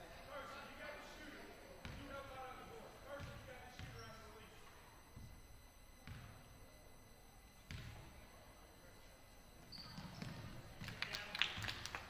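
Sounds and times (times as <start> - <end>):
sneakers squeaking: 1.8 - 8.4, 9.0 - 11.8
basketball bouncing on wooden floor: 6.0 - 6.3.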